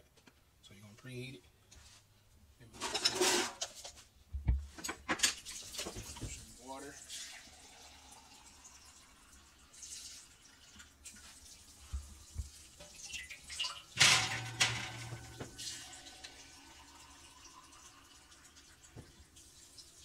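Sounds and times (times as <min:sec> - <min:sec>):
water pouring into metal pan: 0:05.4 - 0:20.0.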